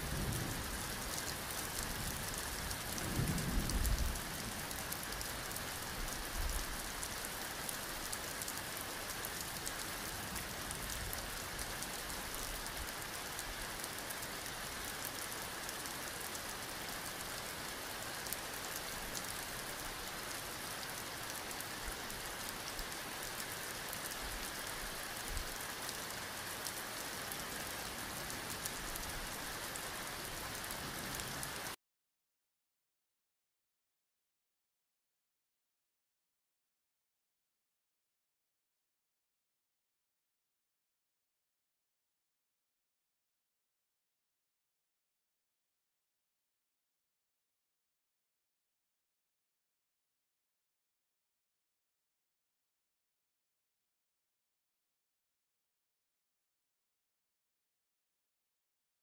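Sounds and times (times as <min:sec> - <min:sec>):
rain-like hiss with crackle: 0:00.0 - 0:31.8.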